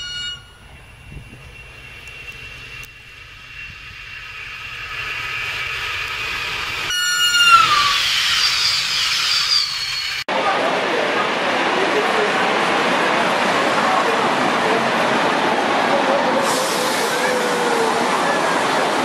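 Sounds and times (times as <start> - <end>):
passenger train passing: 0.0 - 19.0
train horn note: 6.9 - 8.0.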